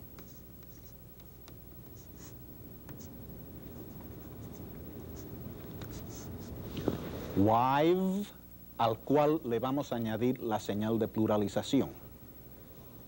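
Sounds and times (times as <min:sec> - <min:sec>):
low steady hum: 0:00.0 - 0:13.0
chalk scratching on chalkboard: 0:03.7 - 0:06.6.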